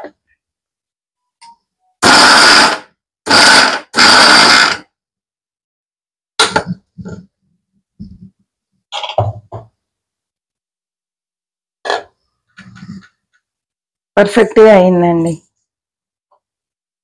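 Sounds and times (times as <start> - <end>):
mixer grinder grinding: 2.0 - 4.9.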